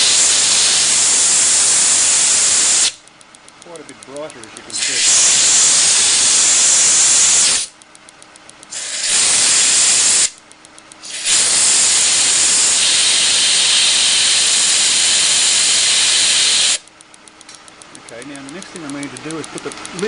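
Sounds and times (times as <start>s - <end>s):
compressed air hissing: 0.0s - 3.0s, 4.8s - 7.7s, 8.7s - 10.4s, 11.0s - 16.8s
spark plug ticking: 0.0s - 20.0s.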